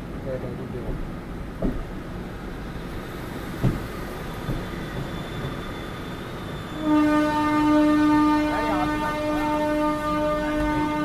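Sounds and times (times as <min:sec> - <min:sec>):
knock: 0:01.6 - 0:01.8
train horn blast: 0:06.8 - 0:11.0.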